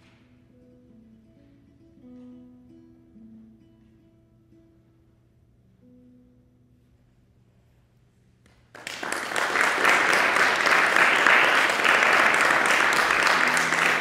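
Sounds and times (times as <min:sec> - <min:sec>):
audience applause: 0:08.7 - 0:14.0.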